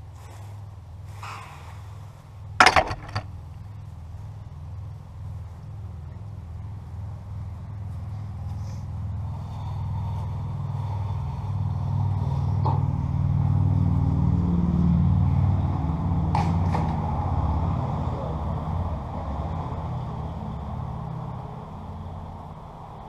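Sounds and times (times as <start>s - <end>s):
low engine drone: 0.0s - 23.0s
sharp knocks: 2.6s - 3.3s.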